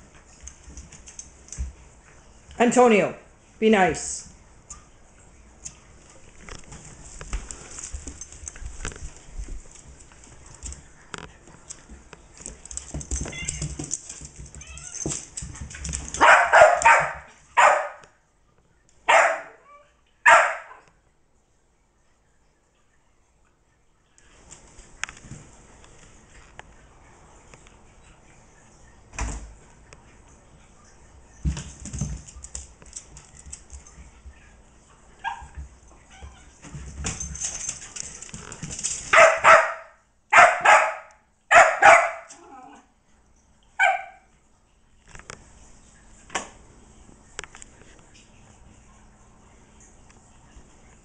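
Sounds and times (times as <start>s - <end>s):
paws scuffling on floor: 5.6s - 17.9s, 31.3s - 34.6s, 35.2s - 39.8s
puppy barking and yapping: 16.1s - 18.0s, 19.1s - 20.8s, 35.2s - 36.6s, 39.1s - 42.8s, 43.8s - 44.3s.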